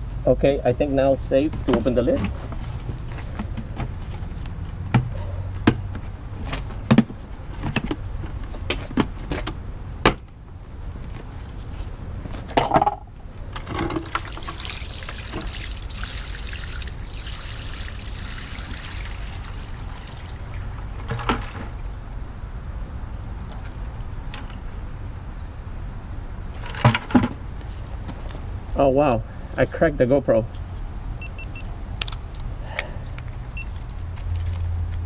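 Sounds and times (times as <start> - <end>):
water splashing onto concrete: 13.9 - 21.1.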